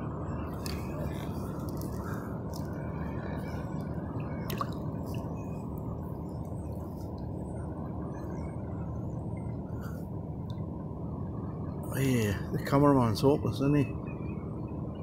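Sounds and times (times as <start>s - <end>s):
steady low rush: 0.0s - 15.0s
water splash: 4.4s - 5.3s.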